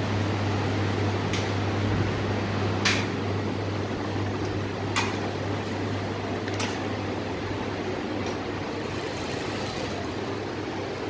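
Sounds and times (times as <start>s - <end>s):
sewing machine motors humming: 7.1s - 11.0s.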